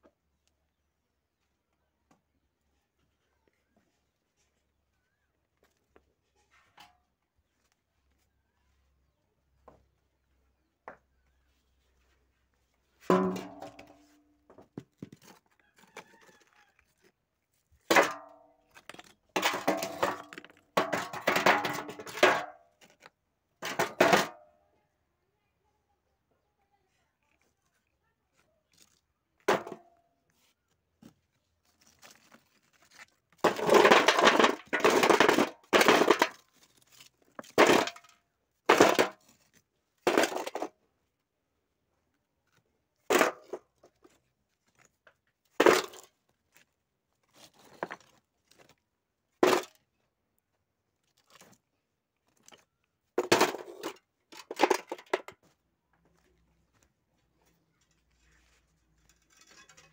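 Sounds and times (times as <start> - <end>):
stones clattering into metal basin: 13.1 - 14.2, 17.9 - 22.6, 23.6 - 24.4, 33.4 - 36.4, 37.4 - 38.1, 38.7 - 39.2, 40.0 - 40.7, 45.6 - 46.1, 49.4 - 49.8, 53.2 - 55.4, 58.1 - 59.9.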